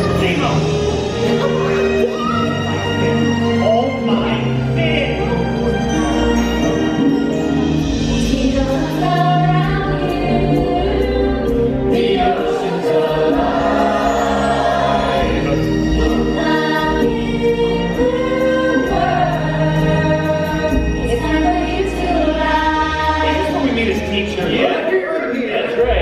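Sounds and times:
group singing show tune: 8.0 - 26.0.

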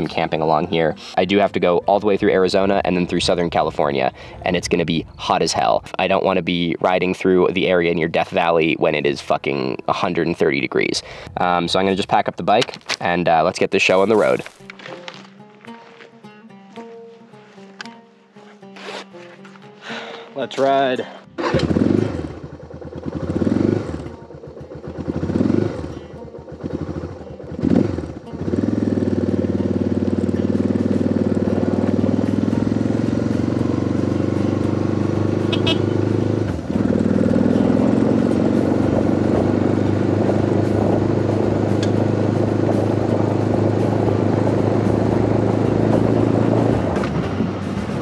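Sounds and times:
motorcycle engine pulling away: 21.4 - 48.0.

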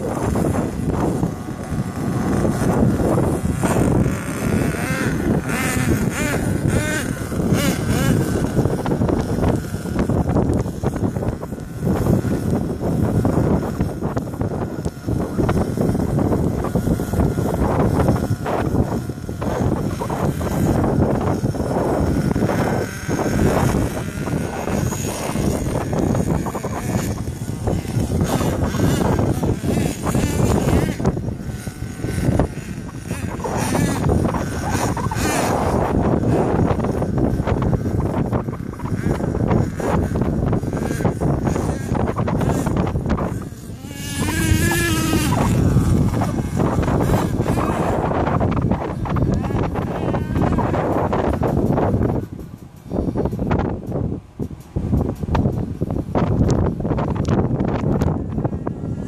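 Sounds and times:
toy truck engine revving: 0.0 - 53.8.

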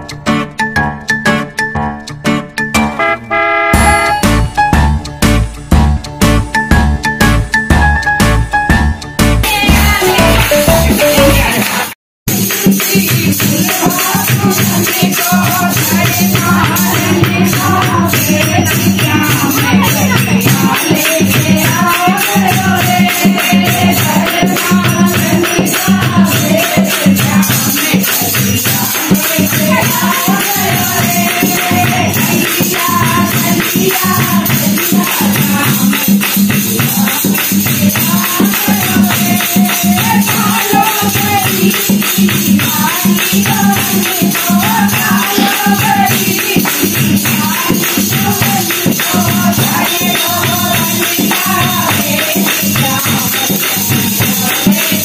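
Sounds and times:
jingling hand percussion: 0.0 - 55.0
fast steady clapping: 9.4 - 12.6, 26.5 - 55.0
women singing devotional song: 9.4 - 55.0.

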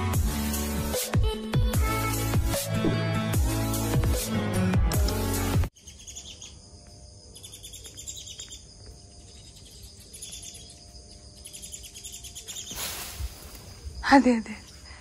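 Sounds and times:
high insect whine: 5.7 - 15.0
small birds chirping: 5.7 - 15.0
burst of hissing noise: 12.7 - 13.8.

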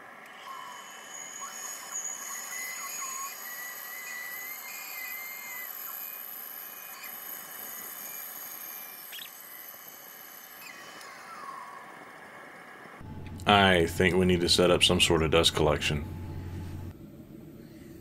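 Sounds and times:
bandsaw whine: 0.0 - 12.0, 13.0 - 16.9
wavering tone: 13.0 - 16.9.

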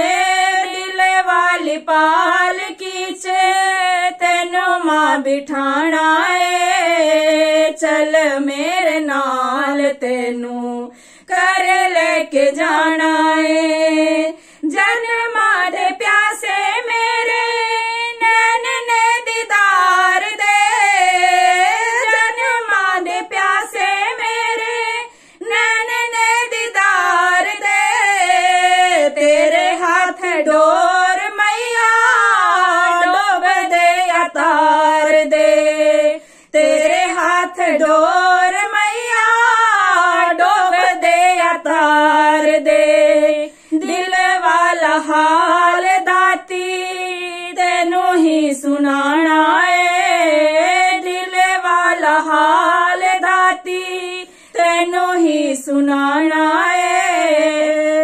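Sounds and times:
women singing unaccompanied: 0.0 - 58.0.

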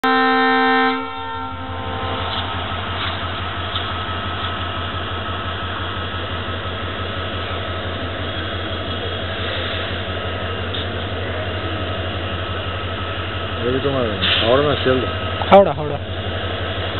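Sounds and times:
diesel locomotive engine throbbing: 0.0 - 16.9
general hiss: 14.1 - 15.1.

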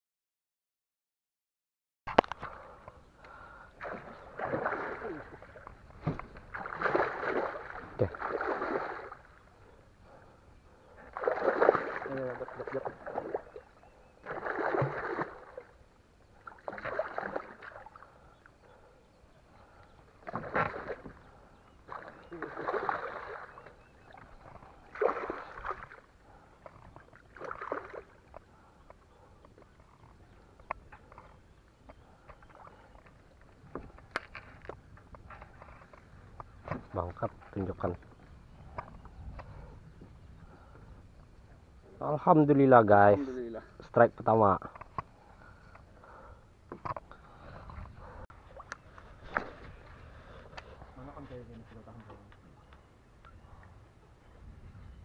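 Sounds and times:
water sloshing: 2.2 - 18.9, 19.5 - 39.7, 44.6 - 52.2
boat rustling through bushes: 11.1 - 13.6.

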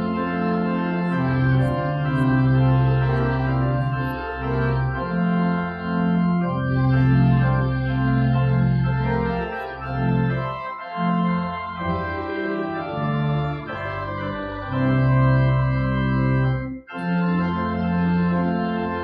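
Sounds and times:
organ playing held chords: 0.0 - 19.0.

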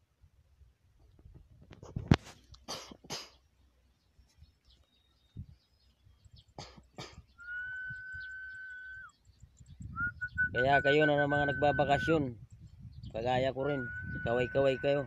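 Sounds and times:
steady high whistle: 7.4 - 9.1, 9.9 - 12.2, 13.6 - 15.0.

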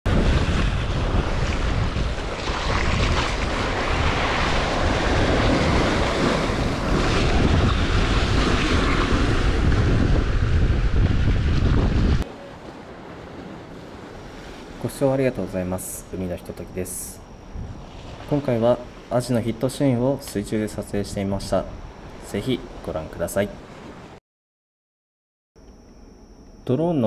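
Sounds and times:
wind buffeting microphone: 0.1 - 12.2, 17.4 - 18.3
sea surf against seawall: 0.1 - 24.2.

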